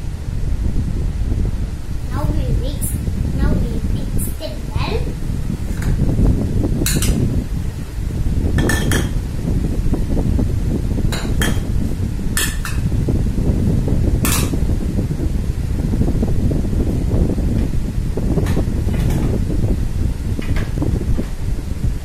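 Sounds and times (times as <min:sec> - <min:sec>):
steady low rumble: 0:00.0 - 0:22.0.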